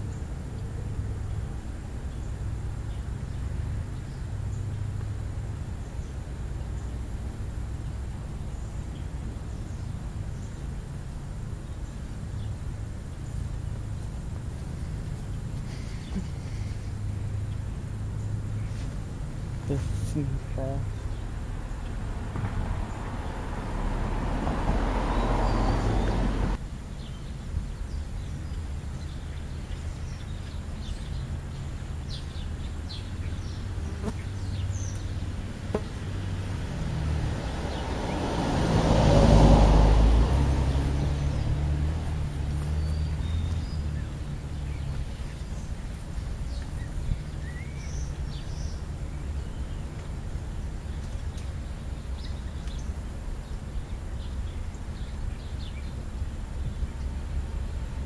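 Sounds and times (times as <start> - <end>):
car driving past: 13.2 - 26.6, 32.1 - 52.8.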